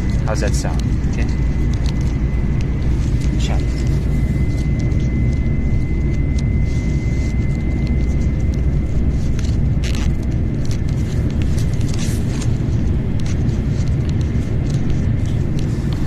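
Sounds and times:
train cabin low rumble: 0.0s - 4.3s.

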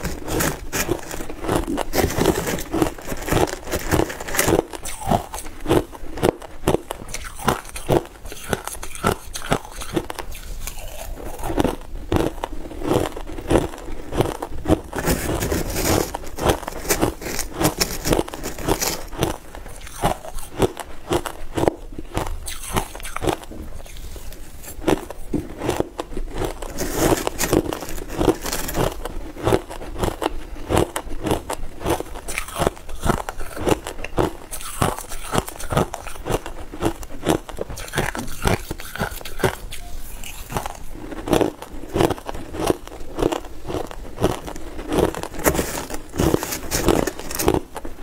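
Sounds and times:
metal spoon scraping ice: 0.0s - 5.4s, 14.9s - 20.4s, 26.4s - 29.1s, 45.1s - 47.6s
chewing crushed ice: 0.0s - 48.0s.

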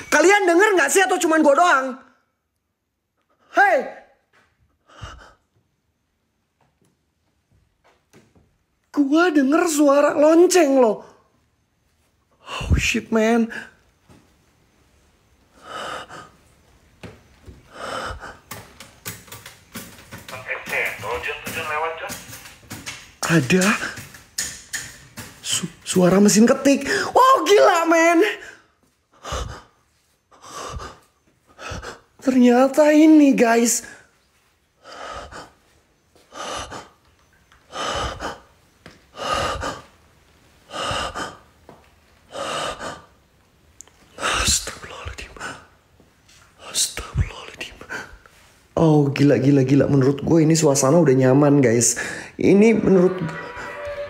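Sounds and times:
person breathing heavily: 4.8s - 5.6s, 15.5s - 16.6s, 17.5s - 18.9s, 28.4s - 32.2s, 34.7s - 40.0s, 40.6s - 41.6s, 42.2s - 43.3s, 52.0s - 52.4s
sharp clicks: 18.2s - 25.4s.

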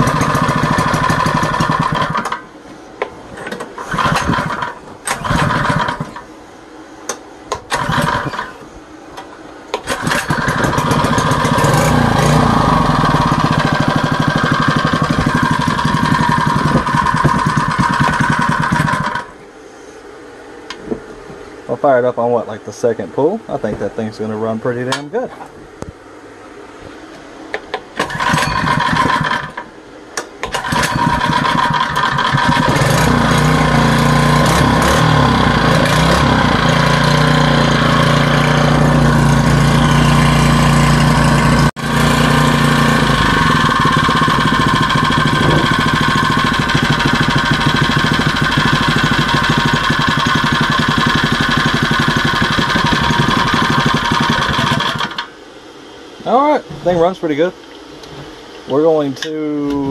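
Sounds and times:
small engine running: 0.0s - 2.4s, 3.8s - 6.2s, 7.7s - 8.6s, 9.8s - 19.3s, 28.0s - 29.6s, 30.5s - 55.3s.

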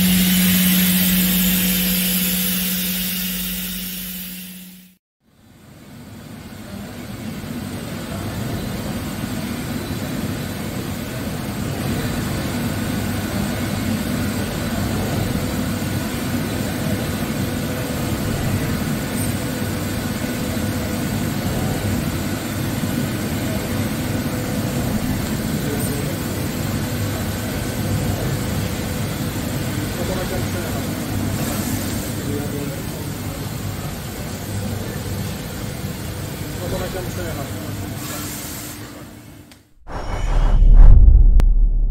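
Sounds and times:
machining centre running: 0.0s - 4.9s.

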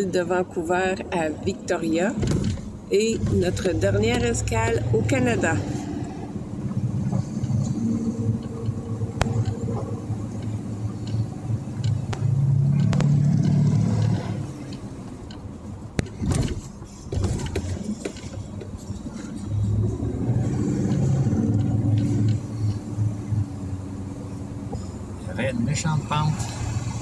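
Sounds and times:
engine and road drone in cabin: 0.0s - 27.0s
sharp knocks and rattles: 6.7s - 19.4s.

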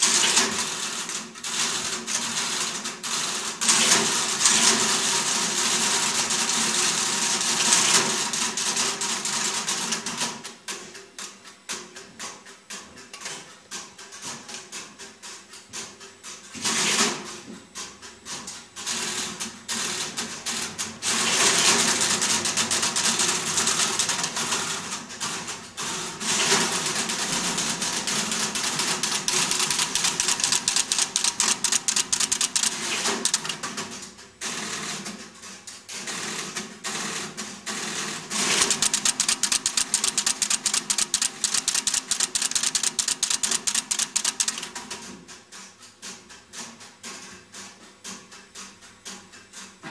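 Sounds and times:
relays and switches clattering: 26.4s - 34.0s, 38.4s - 45.1s.

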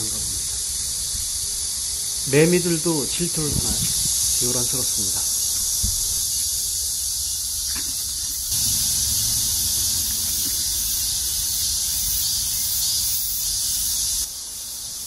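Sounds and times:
cicadas shrilling: 0.0s - 15.0s.

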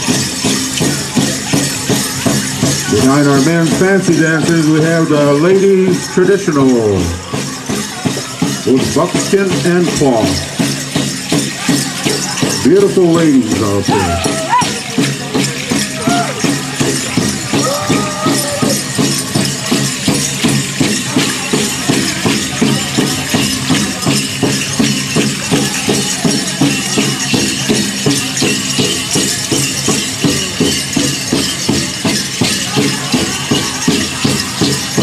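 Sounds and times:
bells jingling: 0.0s - 35.0s
big drum beating fast: 0.0s - 35.0s
voices singing: 12.6s - 15.0s.

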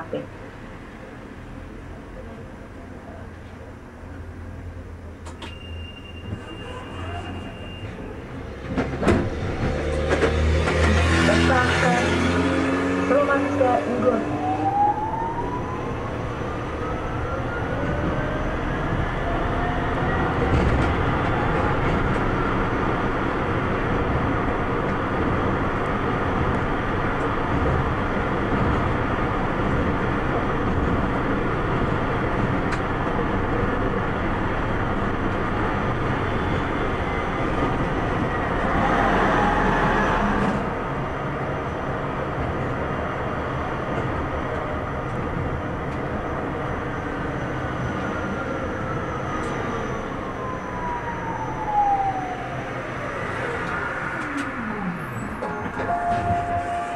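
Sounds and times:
wheels rumbling on track: 0.0s - 56.9s
tram motor whine: 13.1s - 56.9s.

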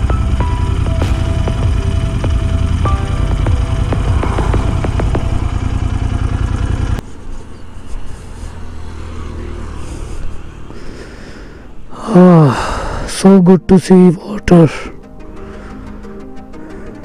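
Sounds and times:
motorcycle engine running: 0.0s - 10.9s.

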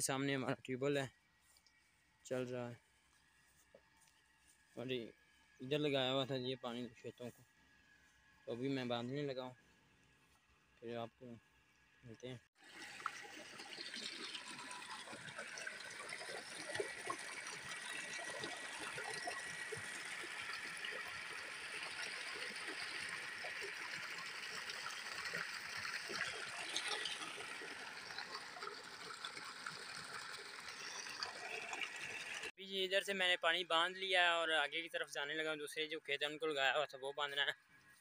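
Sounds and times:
water pouring from a pipe: 12.6s - 32.5s.

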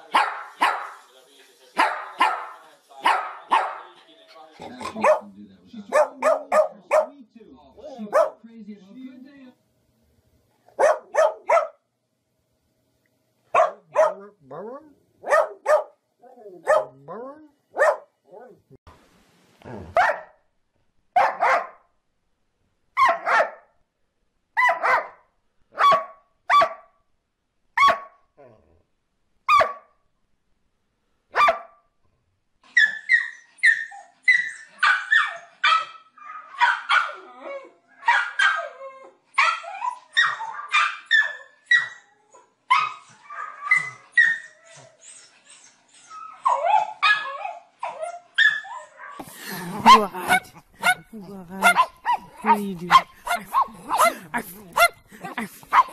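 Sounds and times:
dog barking: 0.0s - 1.0s, 1.8s - 3.9s, 4.7s - 7.2s, 8.0s - 8.4s, 10.7s - 11.8s, 13.5s - 14.4s, 15.2s - 16.0s, 16.6s - 17.0s, 17.7s - 18.1s, 19.8s - 20.4s, 21.2s - 21.9s, 23.0s - 23.7s, 24.6s - 26.9s, 27.8s - 28.2s, 29.5s - 29.9s, 31.3s - 31.8s, 34.8s - 37.2s, 38.0s - 38.8s, 39.4s - 42.0s, 48.4s - 55.9s
small dog barking rapidly: 0.1s - 1.0s, 1.8s - 3.8s, 4.9s - 5.2s, 5.9s - 7.1s, 8.1s - 8.4s, 10.8s - 11.8s, 13.5s - 14.2s, 15.2s - 16.0s, 16.6s - 17.0s, 17.8s - 18.1s, 20.0s - 20.3s, 21.2s - 21.8s, 23.0s - 23.6s, 24.6s - 25.2s, 25.8s - 26.9s, 27.8s - 28.2s, 29.5s - 29.9s, 31.4s - 31.8s, 34.8s - 37.2s, 38.0s - 38.7s, 49.8s - 55.9s.

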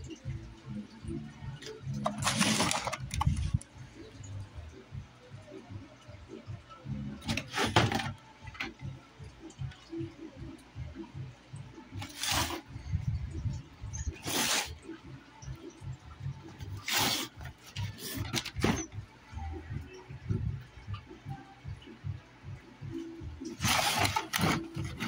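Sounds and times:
cardboard box rustling: 2.0s - 3.6s, 23.6s - 25.0s.

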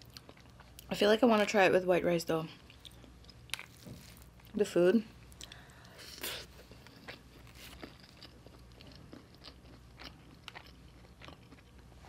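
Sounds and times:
close-up chewing: 5.2s - 12.0s.

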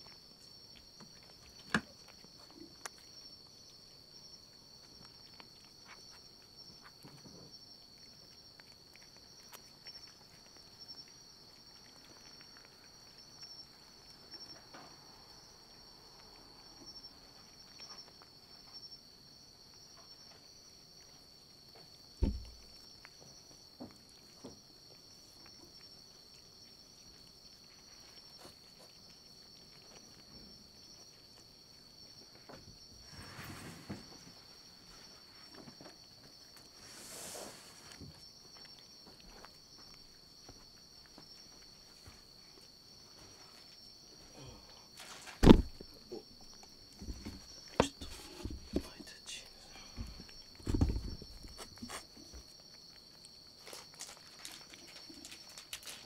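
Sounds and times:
loud thump: 45.4s - 45.8s.

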